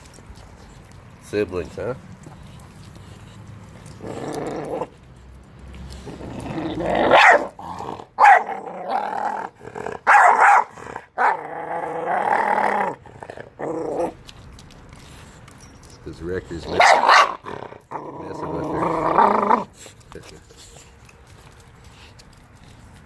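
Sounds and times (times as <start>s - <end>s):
puppy growling and snarling: 2.2s - 14.6s, 16.4s - 20.0s
puppy barking sharply: 7.1s - 7.5s, 8.2s - 8.5s, 10.1s - 11.4s, 16.8s - 17.4s.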